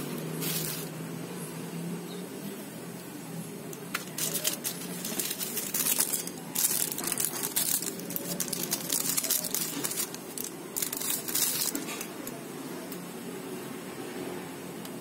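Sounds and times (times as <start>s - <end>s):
plastic bag crinkling: 0.3s - 0.9s, 3.9s - 12.4s.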